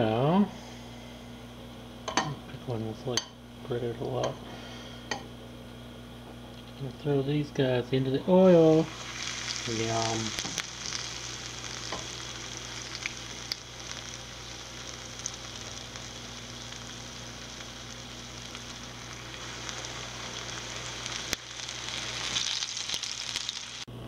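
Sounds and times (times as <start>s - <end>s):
fish sizzling in oil: 8.3s - 23.9s.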